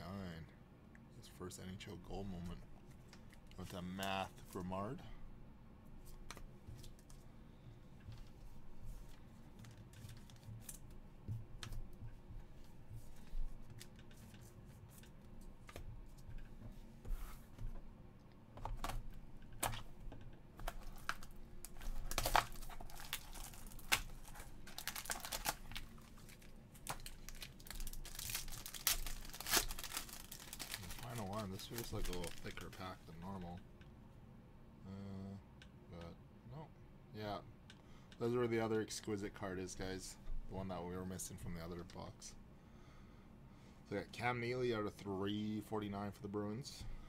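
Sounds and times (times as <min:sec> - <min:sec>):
card pack wrapper tearing: 0:20.8 - 0:32.9.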